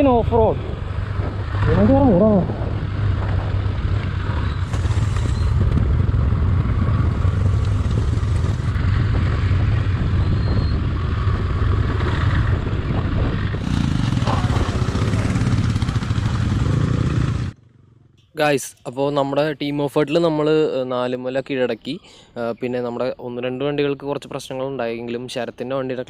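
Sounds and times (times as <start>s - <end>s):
motorcycle engine running: 0.0s - 18.3s.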